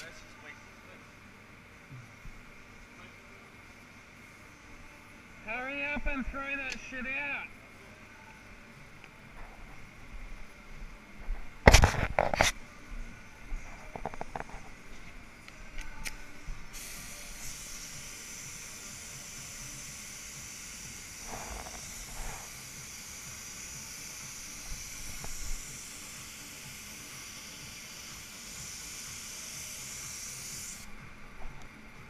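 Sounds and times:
paint spray gun hissing: 15.9s - 31.5s.

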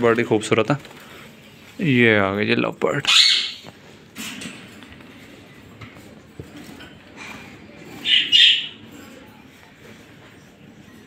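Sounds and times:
birds screechy squawks: 3.0s - 3.7s, 8.0s - 8.8s.

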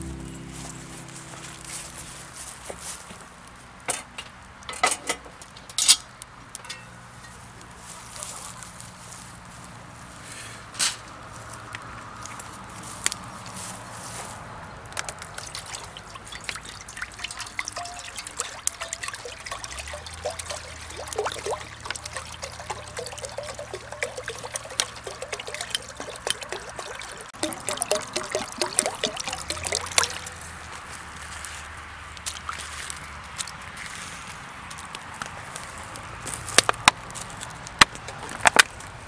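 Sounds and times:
small water plops: 15.0s - 33.7s, 37.4s - 38.8s
water trickling and bubbling: 15.0s - 33.7s, 37.8s - 38.6s.

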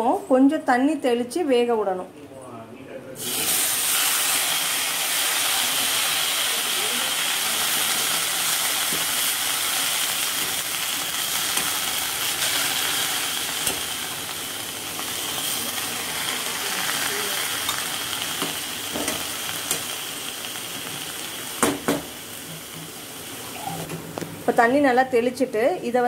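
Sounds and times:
food sizzling in a hot pan: 3.2s - 25.2s.

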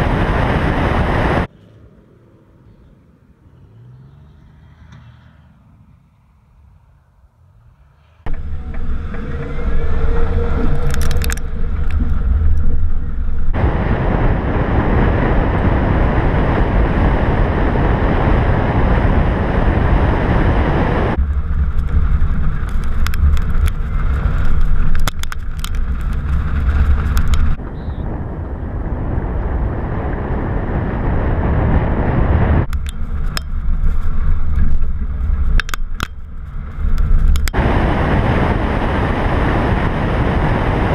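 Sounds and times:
wind buffeting: 0.0s - 3.2s, 5.3s - 40.9s.

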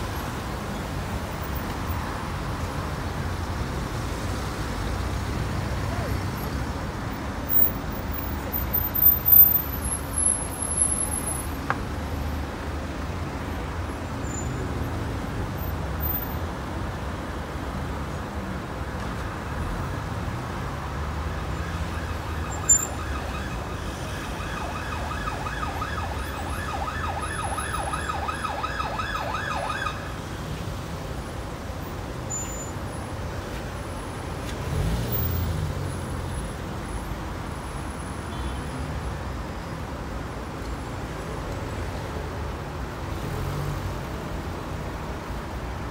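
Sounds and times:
road traffic rumble: 0.0s - 45.9s
siren yelping: 21.5s - 30.1s.

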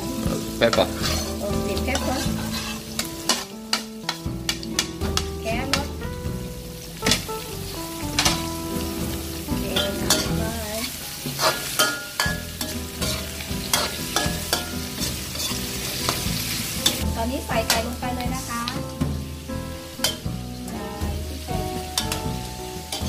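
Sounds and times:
vegetables sizzling in a wok: 0.0s - 23.0s
metal ladle scraping a wok: 0.7s - 5.2s, 9.8s - 17.0s, 19.9s - 20.2s.

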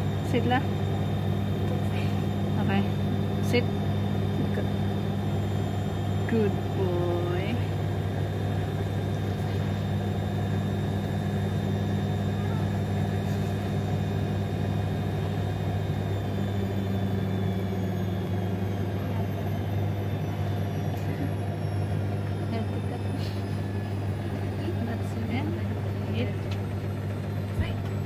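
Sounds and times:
low machine hum: 0.0s - 28.0s.

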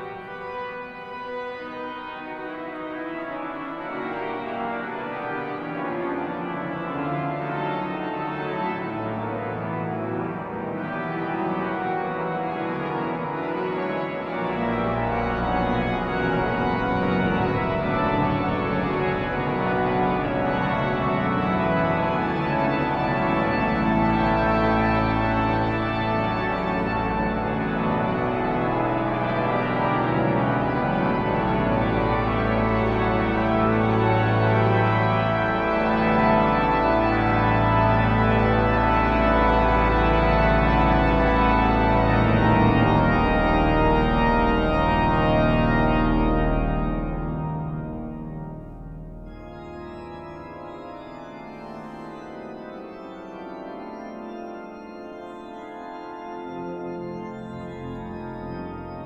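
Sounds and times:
deep organ pedal notes: 0.0s - 59.0s
pipe organ playing chords: 0.0s - 59.0s.

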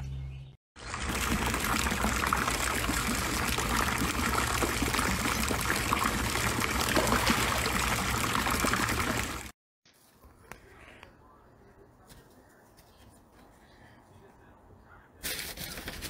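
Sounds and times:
water running and trickling: 0.8s - 9.6s.

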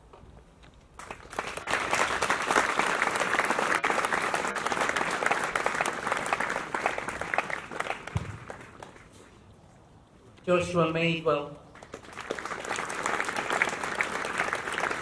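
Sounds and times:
audience clapping: 1.0s - 9.1s, 11.7s - 15.0s.

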